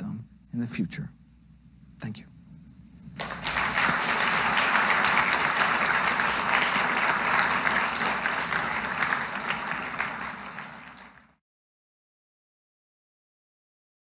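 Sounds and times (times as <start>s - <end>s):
audience applauding: 3.2s - 11.4s.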